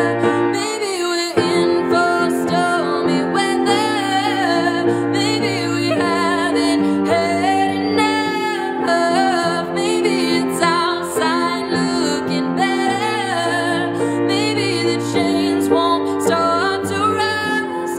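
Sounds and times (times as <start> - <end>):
grand piano playing chords: 0.0 - 17.9
woman singing with vibrato: 0.0 - 17.9.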